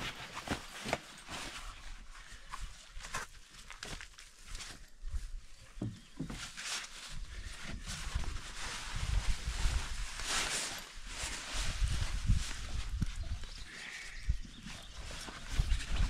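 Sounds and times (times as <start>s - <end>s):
nylon fabric rustling: 0.0s - 2.4s, 6.2s - 13.2s
wind rumble on microphone: 7.4s - 10.2s, 11.5s - 16.0s.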